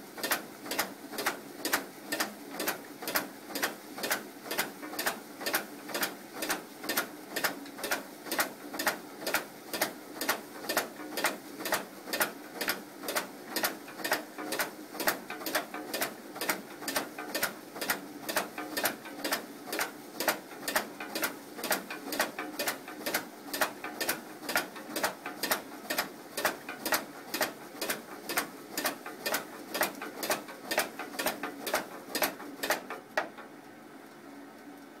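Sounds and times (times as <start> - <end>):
sharp machine clicks: 11.7 - 33.0.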